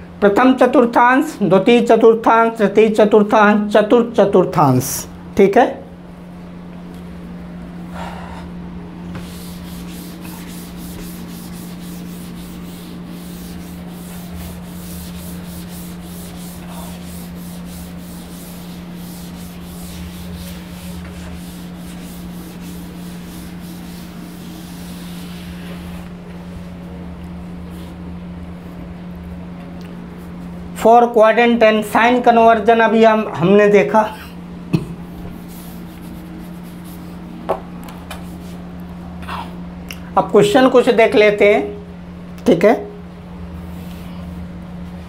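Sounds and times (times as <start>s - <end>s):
steady low hum: 0.0s - 45.0s
writing board being rubbed: 9.1s - 26.1s, 35.1s - 37.3s.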